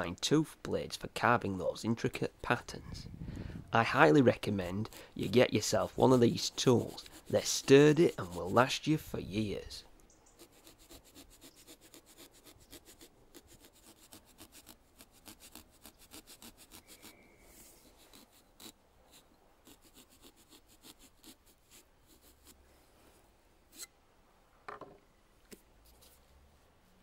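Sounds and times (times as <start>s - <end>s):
saw cutting pumpkin: 4.8s - 8.9s, 10.4s - 22.6s.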